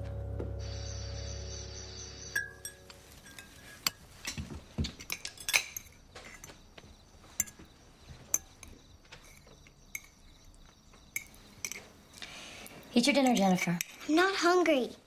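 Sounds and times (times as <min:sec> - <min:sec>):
cutlery clinking on plates: 0:02.4 - 0:06.6, 0:07.2 - 0:07.7, 0:11.1 - 0:11.9.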